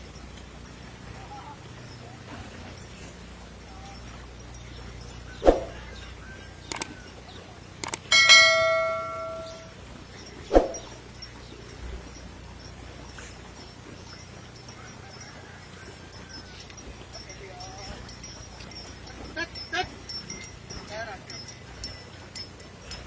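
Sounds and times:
swish sound effect: 5.4s - 5.8s, 10.5s - 10.9s
mouse clicks: 6.7s - 6.9s
notification bell ding: 7.8s - 9.8s.

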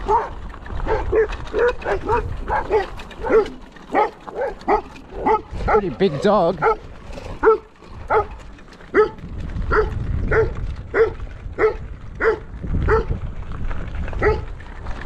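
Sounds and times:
large dog barking: 0.0s - 13.1s, 14.2s - 14.5s.

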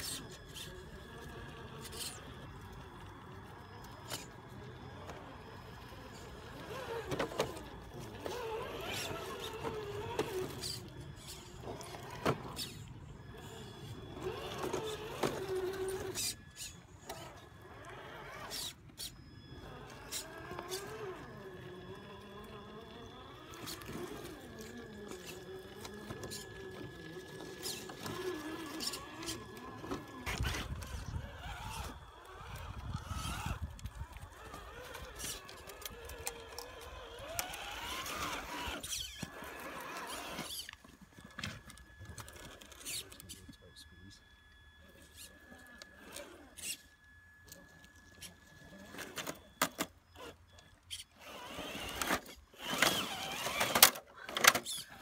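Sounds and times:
electric motors whining: 0.0s - 55.0s.

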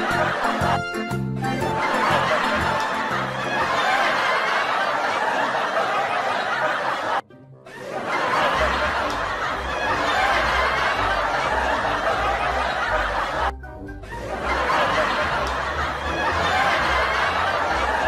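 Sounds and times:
people laughing: 0.0s - 0.9s, 1.5s - 18.0s
background music: 0.0s - 4.6s, 7.1s - 18.0s
low bass notes: 8.6s - 18.0s.

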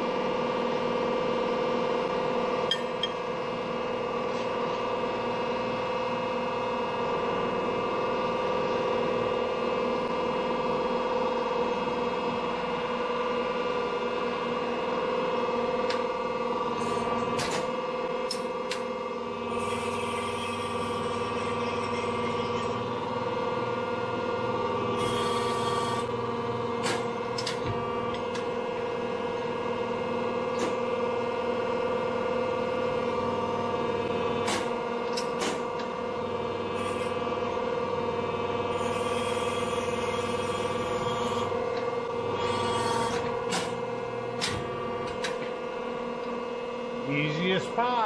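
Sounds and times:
hydraulic press motor humming: 2.5s - 47.7s.

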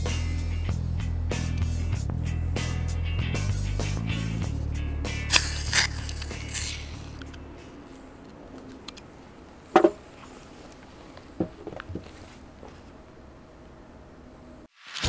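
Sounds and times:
background music: 0.0s - 7.9s.

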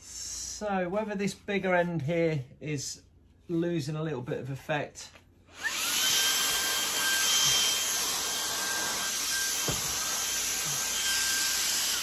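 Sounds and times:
handheld vacuum whining: 5.5s - 12.0s.

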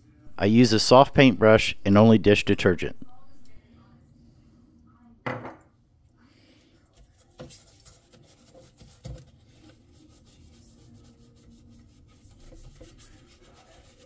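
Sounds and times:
paintbrush scrubbing circuit board: 7.0s - 14.0s.

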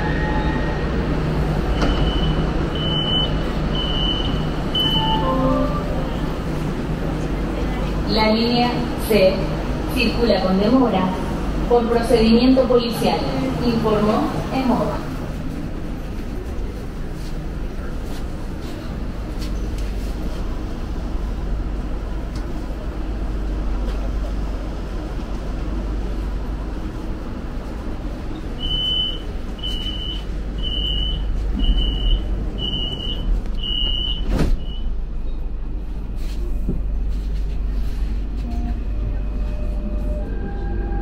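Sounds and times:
electric train whine: 0.0s - 15.8s, 36.8s - 41.0s
subway car rumble: 0.0s - 41.0s
door warning beeps: 1.7s - 6.0s, 28.6s - 34.9s.

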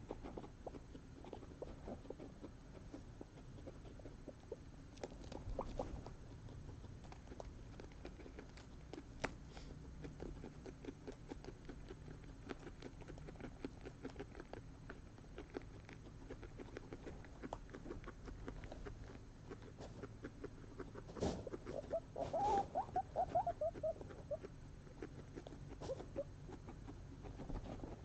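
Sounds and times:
guinea pigs chewing: 0.0s - 28.0s.

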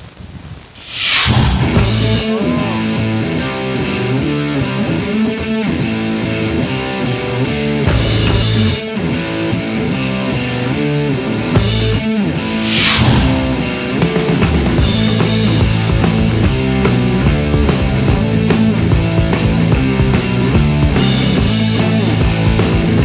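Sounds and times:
whoosh sweep: 0.8s - 2.6s, 12.6s - 14.0s
rock music with guitar and drums: 0.9s - 23.0s.

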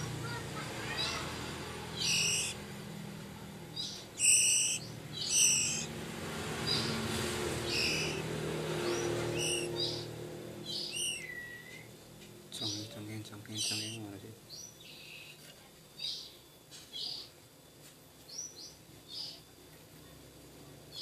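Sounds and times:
bird chick begging calls: 0.0s - 2.8s, 3.7s - 11.9s, 13.6s - 14.1s.

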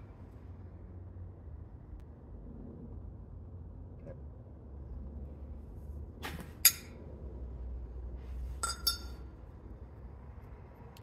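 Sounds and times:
metal clinks: 8.6s - 9.2s
metallic ring: 8.6s - 9.3s.

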